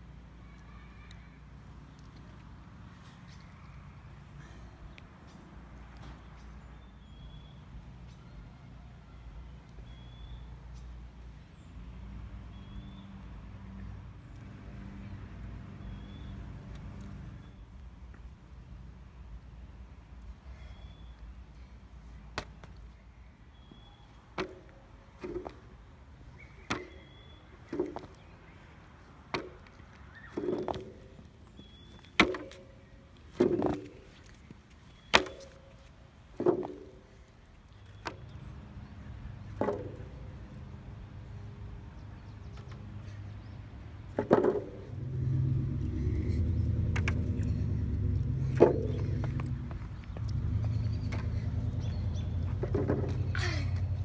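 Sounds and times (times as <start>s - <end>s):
steady low rumble: 44.7s - 54.0s.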